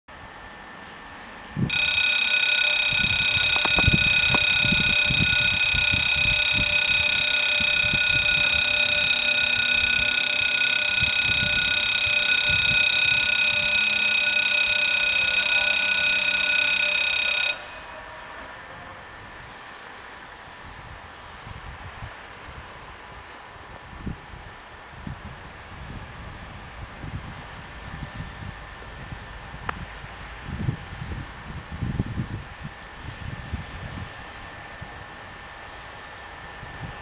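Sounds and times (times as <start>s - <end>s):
level crossing warning bells: 1.7s - 19.8s.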